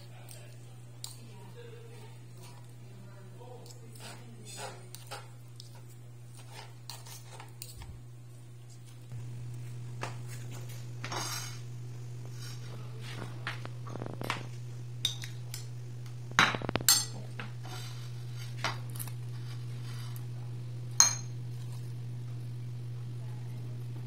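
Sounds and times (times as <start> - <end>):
steady low hum: 0.0 - 24.0
spoon scraping ceramic bowl: 3.6 - 7.8, 11.0 - 11.7.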